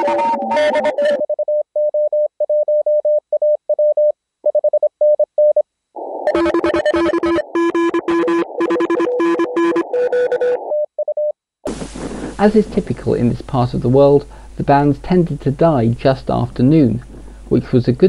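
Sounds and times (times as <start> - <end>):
morse code tones: 0.0 - 3.0, 6.3 - 11.3
receiver hiss: 11.7 - 18.0.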